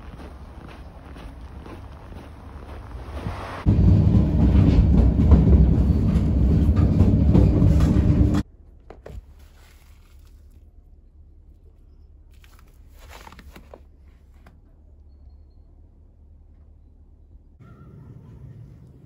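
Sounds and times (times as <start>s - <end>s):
footsteps in snow: 0.0s - 3.7s
vehicle low rumble: 0.0s - 19.0s.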